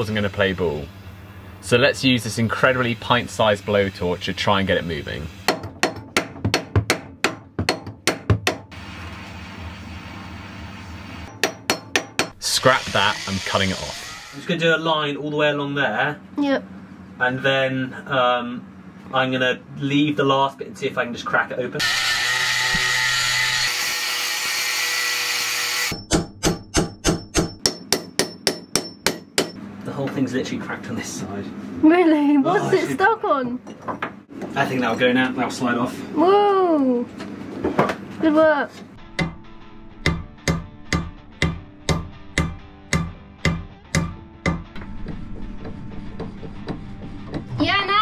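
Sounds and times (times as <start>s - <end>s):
angle grinder cutting metal: 12.4s - 14.6s, 21.8s - 26.0s.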